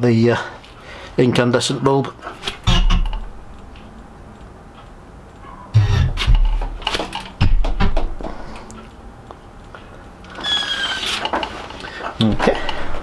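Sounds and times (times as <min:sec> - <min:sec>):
mechanical clicking of wheel: 0:02.4 - 0:07.4.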